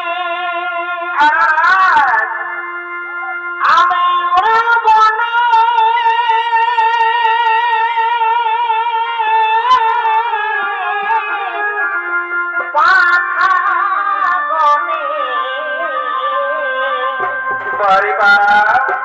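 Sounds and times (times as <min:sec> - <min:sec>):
wavering melody over drone: 0:01.7 - 0:19.0
sharp drum strikes: 0:17.2 - 0:19.0.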